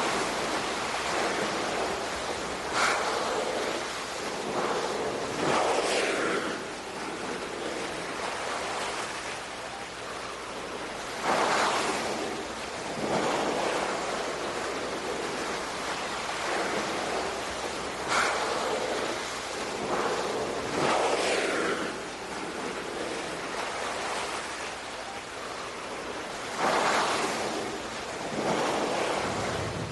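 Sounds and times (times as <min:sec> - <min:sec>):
sea waves washing: 0:00.0 - 0:29.9.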